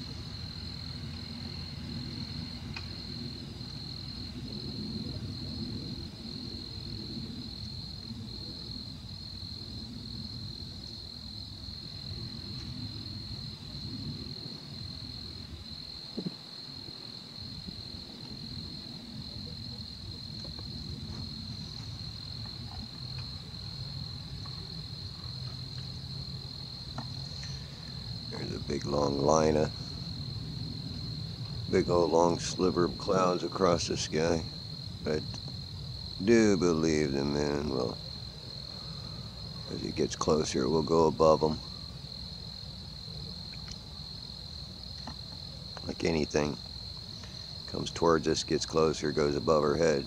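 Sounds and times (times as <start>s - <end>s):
crickets trilling: 0.0s - 50.0s
low background rumble: 16.8s - 50.0s.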